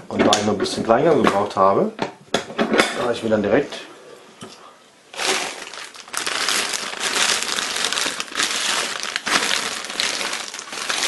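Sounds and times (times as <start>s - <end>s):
plastic bag crinkling: 5.1s - 11.0s.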